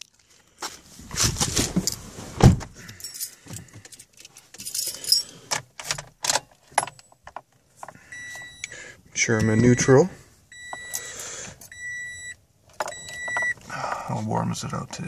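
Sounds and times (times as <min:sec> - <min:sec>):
car keys jangling: 0:02.8 - 0:08.7, 0:12.6 - 0:13.6.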